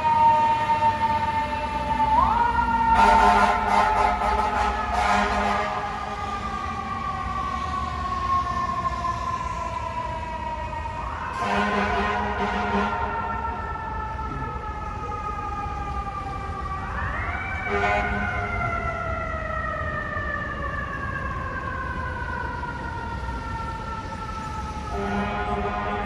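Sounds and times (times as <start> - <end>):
low horn blast: 3.0 - 6.1, 11.4 - 13.1, 17.7 - 18.4, 24.9 - 26.0.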